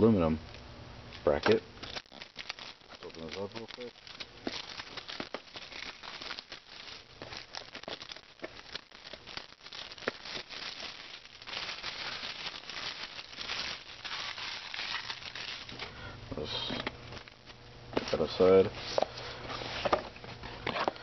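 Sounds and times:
shrink wrap crinkling and tearing: 1.2 - 15.9, 17.1 - 17.6.

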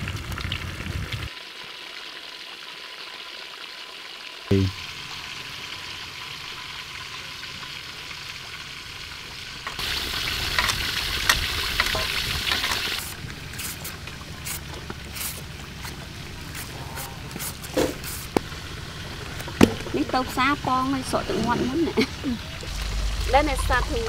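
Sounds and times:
fish sizzling in hot oil: 1.3 - 16.7.

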